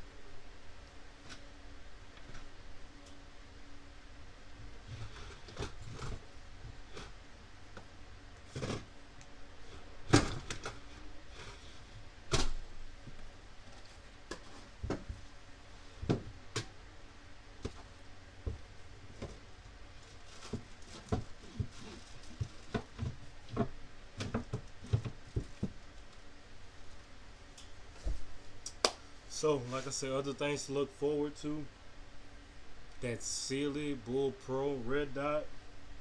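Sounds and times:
items knocking and rattling in a safe: 10.0s - 10.9s, 20.0s - 26.0s.

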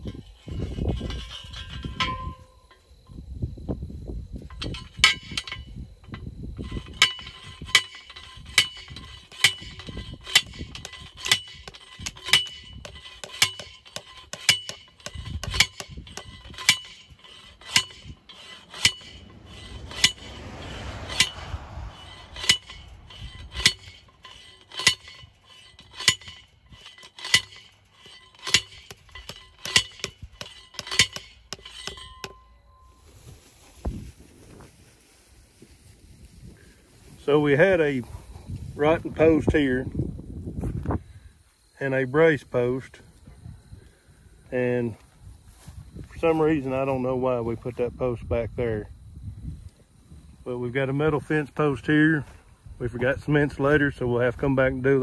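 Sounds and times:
metal striking steel post: 0.0s - 2.9s, 4.4s - 33.0s.

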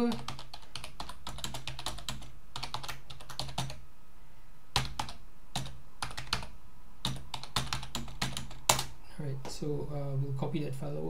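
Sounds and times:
keyboard typing: 0.0s - 3.8s, 4.8s - 9.0s.

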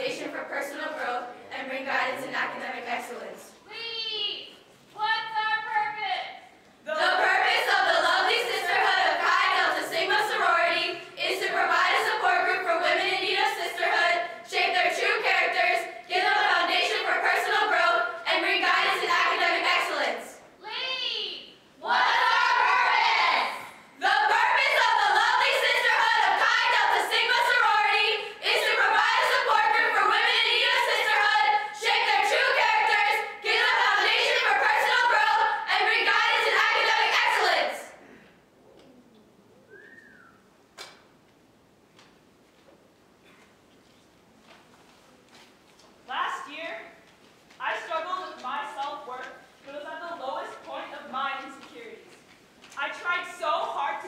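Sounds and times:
women chanting in unison: 21.8s - 38.0s.

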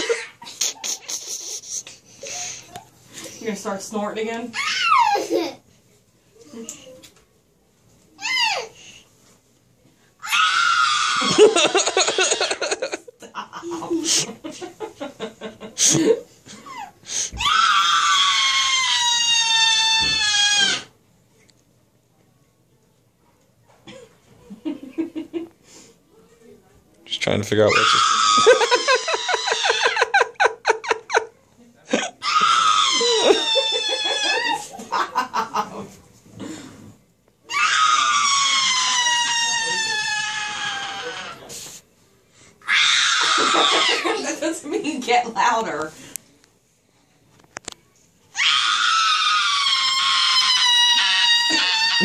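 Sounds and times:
girl shrieking: 4.5s - 5.3s, 8.2s - 8.7s, 10.2s - 12.5s, 16.7s - 20.9s, 27.7s - 30.1s, 32.2s - 34.8s, 37.5s - 41.5s, 42.6s - 44.3s, 48.3s - 52.0s
girl giggling: 11.2s - 17.0s, 28.4s - 32.2s, 33.0s - 35.9s
girl giggling yelps: 28.3s - 31.2s, 32.0s - 35.0s, 43.2s - 44.3s.

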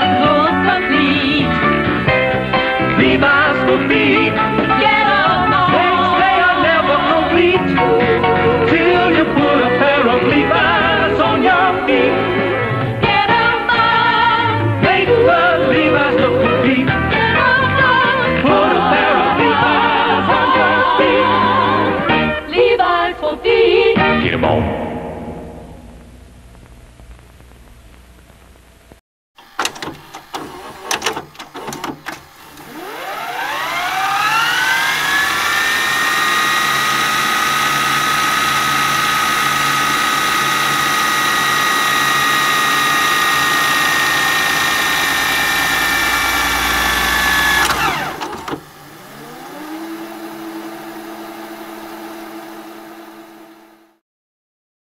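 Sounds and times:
machine clicks: 29.4s - 32.8s
motor whine: 29.4s - 54.0s.

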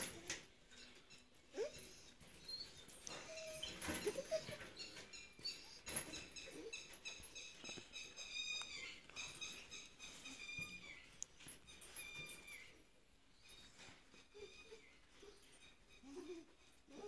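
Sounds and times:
dog whimpering: 1.5s - 6.8s, 13.4s - 17.0s.

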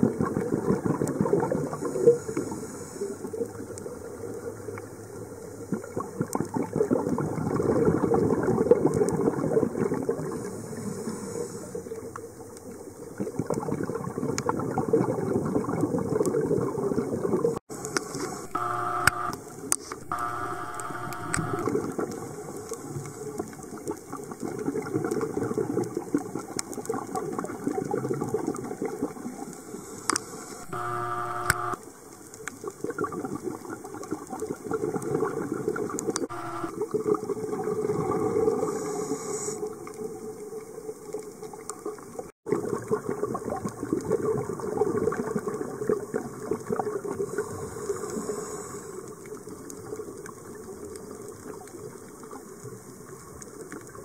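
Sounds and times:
sharp underwater clicks: 17.8s - 22.1s, 30.1s - 31.8s
underwater rushing and gurgling: 21.6s - 30.6s, 31.9s - 36.2s, 36.8s - 54.0s.

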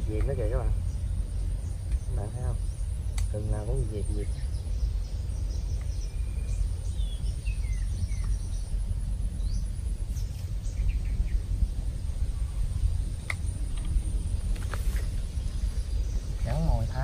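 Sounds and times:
birds chirping: 0.0s - 17.0s
low rumble: 0.0s - 17.0s
sharp clicks: 3.1s - 3.4s.

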